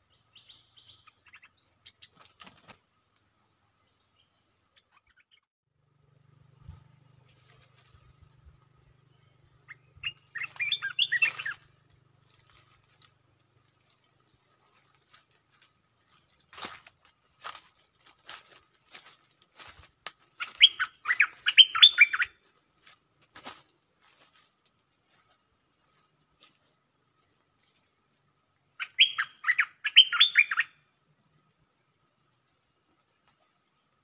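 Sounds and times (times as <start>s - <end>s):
bird warbling song: 0.0s - 2.8s, 6.6s - 12.8s, 20.4s - 22.4s, 28.8s - 30.8s
sharp bird chips: 9.7s - 11.8s, 20.4s - 22.4s.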